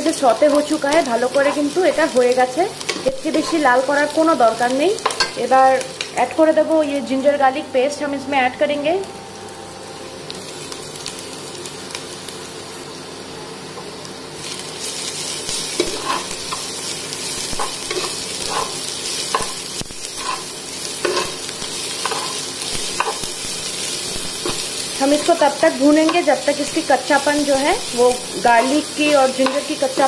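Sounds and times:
onions sizzling in hot oil: 0.0s - 7.6s, 9.0s - 30.0s
spatula scraping and stirring: 15.7s - 16.6s, 17.6s - 21.4s.

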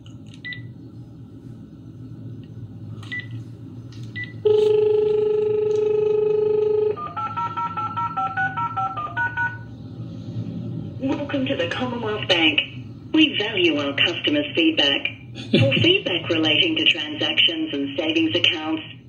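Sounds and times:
touch-tone digits: 4.2s - 9.6s
dial tone: 4.4s - 9.6s.

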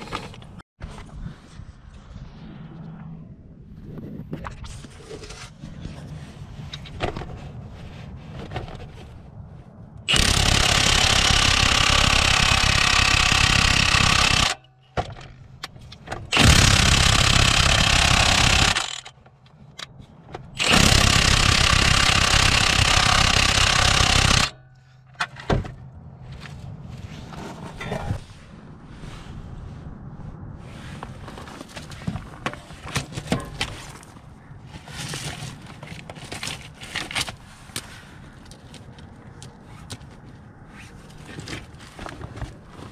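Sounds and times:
impact wrench hammering: 10.1s - 14.7s, 16.3s - 19.1s, 20.6s - 24.6s.

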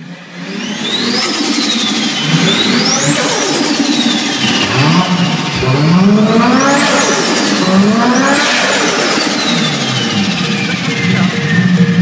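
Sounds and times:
engine-like revving: 0.0s - 12.0s.

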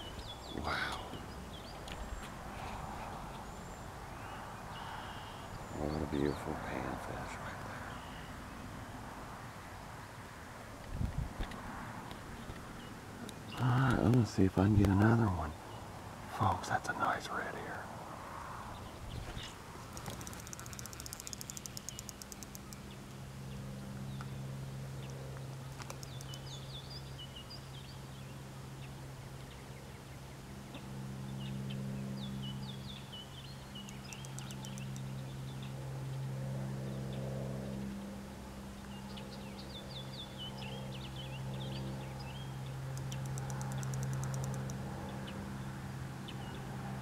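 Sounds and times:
songbirds chirping and trilling: 0.0s - 47.0s
low hum: 18.0s - 47.0s.

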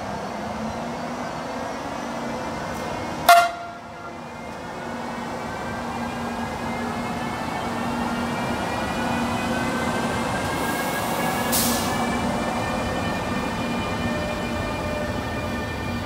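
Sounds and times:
electric locomotive whine: 0.0s - 16.0s
train running hum: 0.0s - 16.0s.

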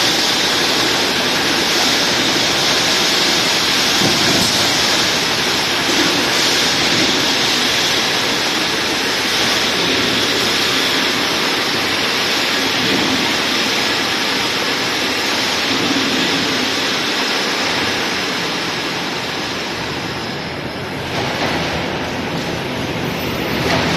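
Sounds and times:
factory machinery rushing: 0.0s - 23.9s.

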